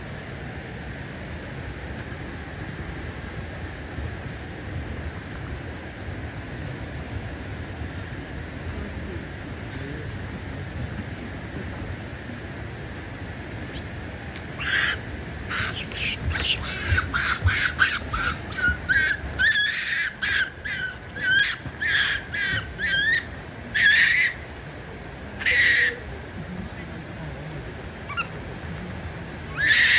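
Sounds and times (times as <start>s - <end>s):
monkey high-pitched coo calls: 14.6s - 24.5s, 25.4s - 26.1s, 28.0s - 28.4s, 29.5s - 29.9s.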